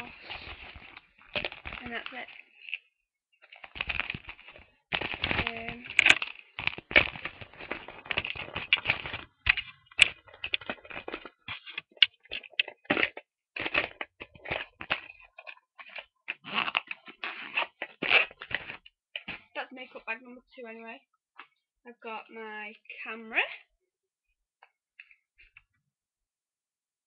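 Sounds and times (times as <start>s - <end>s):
fabric bag rustling: 0.0s - 2.7s, 3.4s - 11.0s
plastic makeup items clicking: 3.5s - 19.4s.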